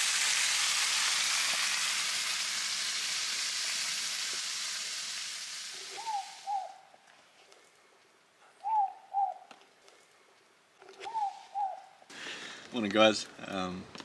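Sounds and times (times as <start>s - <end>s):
steady sizzling hiss: 0.0s - 8.4s
short falling bird calls: 5.7s - 6.9s, 10.9s - 12.0s.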